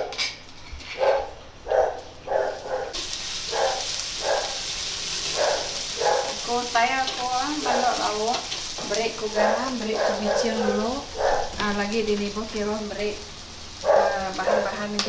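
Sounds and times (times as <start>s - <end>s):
dog barking: 1.0s - 4.6s, 5.3s - 6.4s, 9.4s - 11.6s, 13.8s - 14.8s
oil sizzling: 2.5s - 15.0s.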